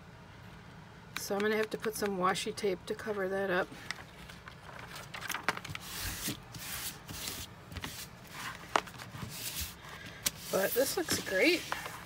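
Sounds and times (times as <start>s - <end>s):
plastic film rustling and crinkling: 3.7s - 12.0s.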